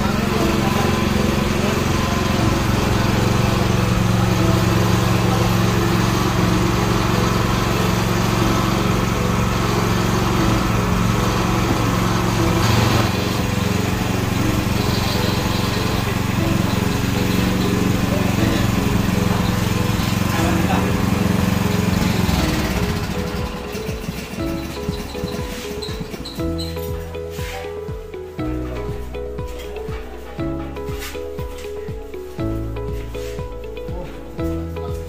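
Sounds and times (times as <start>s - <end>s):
small petrol engine running: 0.0s - 27.5s.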